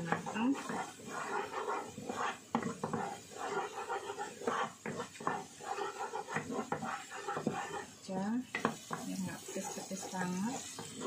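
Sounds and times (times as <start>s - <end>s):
spatula scraping a pan: 0.0s - 11.0s
spice paste frying: 0.0s - 11.0s
spatula knocking against pan: 2.2s - 7.7s, 8.5s - 11.0s.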